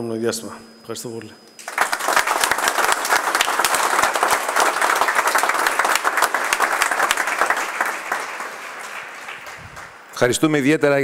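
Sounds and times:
people applauding: 1.6s - 10.3s.

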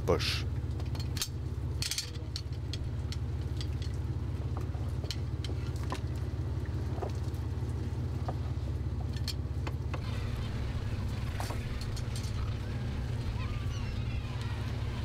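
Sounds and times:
boat engine droning: 0.0s - 15.0s
light metallic clicks of rings: 0.8s - 4.0s.

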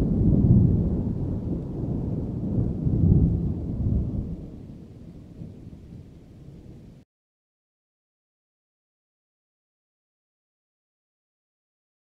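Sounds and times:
rolling thunder: 0.0s - 7.0s.

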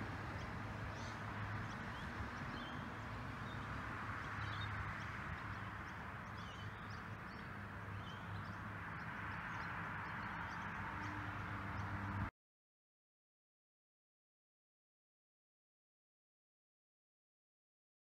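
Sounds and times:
small birds chirping: 0.2s - 12.2s.

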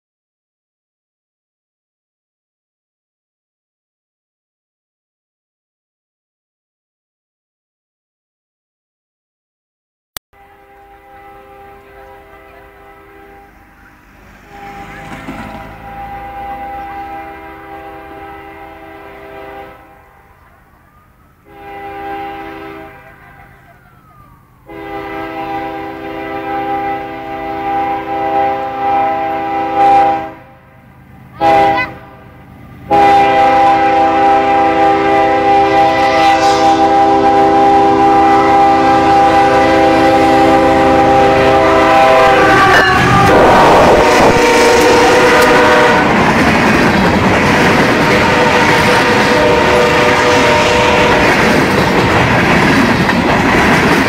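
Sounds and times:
locomotive air horn: 10.4s - 20.6s, 21.4s - 23.6s, 24.6s - 30.6s, 31.4s - 32.3s, 32.9s - 46.2s, 47.8s - 51.6s
train wheels rushing on rail: 10.5s - 54.0s.

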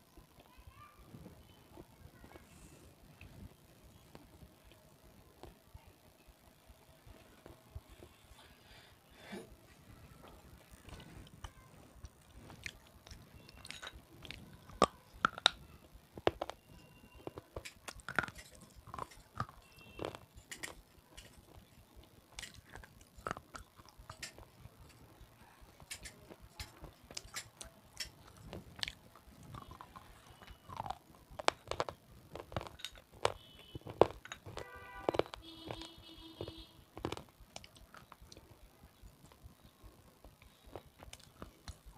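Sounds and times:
crunchy snack being chewed: 12.0s - 15.6s, 16.2s - 41.9s.

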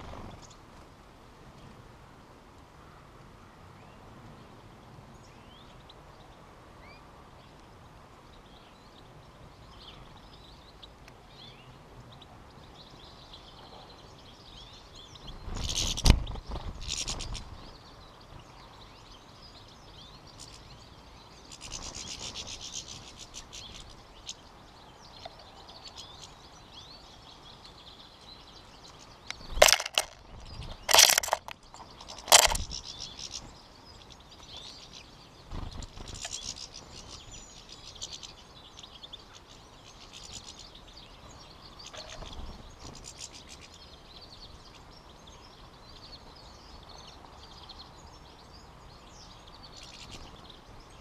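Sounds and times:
finches twittering and chirping: 5.1s - 51.0s.

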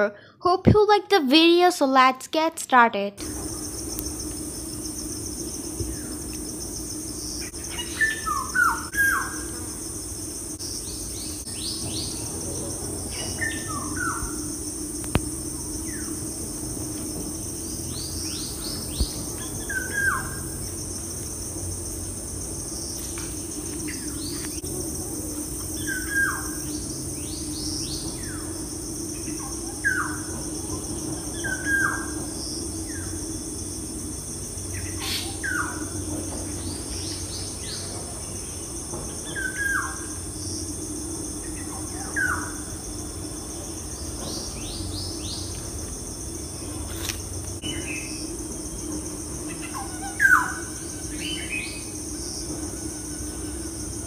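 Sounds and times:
steady low hum: 0.0s - 54.0s
birds chirping: 3.2s - 14.6s, 15.5s - 21.4s
high insect buzz: 3.2s - 54.0s.

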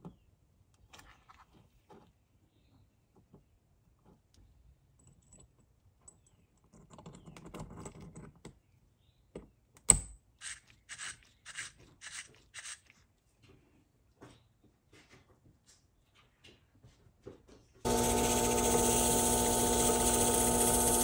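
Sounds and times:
rasping strokes: 17.9s - 21.0s.

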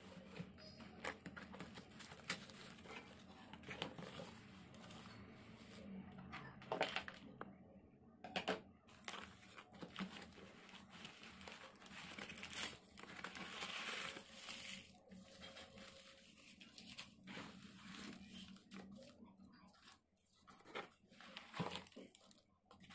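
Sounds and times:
shredded paper rustling: 0.0s - 5.9s, 8.9s - 22.9s.

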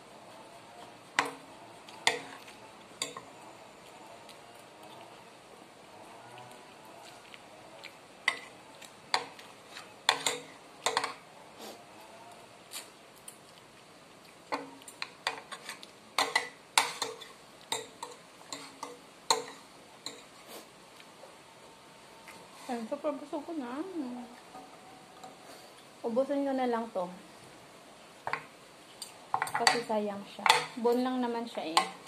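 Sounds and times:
cutlery clinking on ceramic plates: 9.1s - 11.2s, 14.5s - 20.3s, 28.3s - 30.8s.

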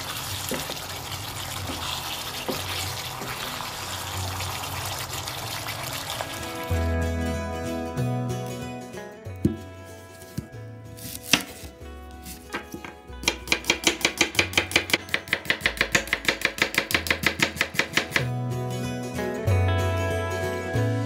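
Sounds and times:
soft background music: 0.0s - 21.0s
knife chopping on cutting board: 9.4s - 9.6s, 10.2s - 18.3s.

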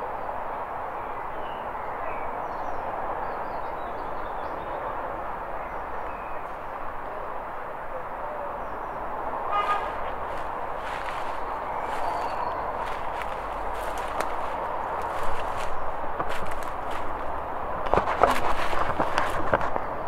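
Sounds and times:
steady background noise: 0.0s - 20.0s
small birds chirping: 8.4s - 17.4s.

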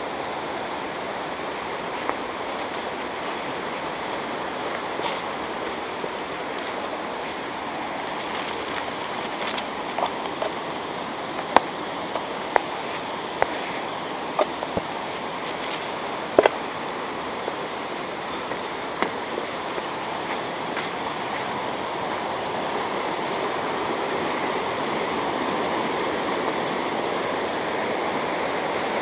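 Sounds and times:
stream rushing: 0.0s - 29.0s
footsteps on stony leafy path: 0.9s - 23.5s.

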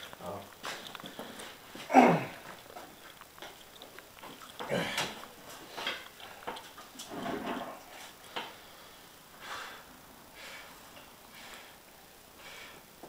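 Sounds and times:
strained effortful breathing: 4.6s - 13.0s.

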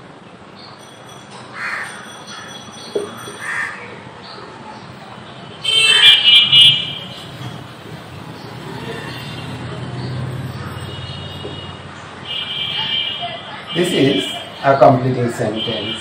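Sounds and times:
crows cawing: 1.5s - 2.6s, 3.4s - 4.0s.

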